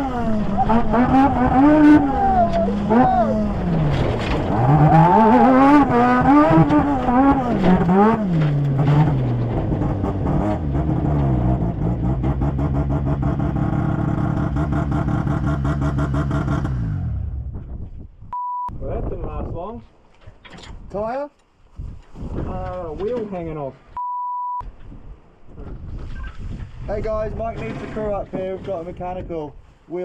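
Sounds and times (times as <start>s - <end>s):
engine revving: 0.0s - 17.6s.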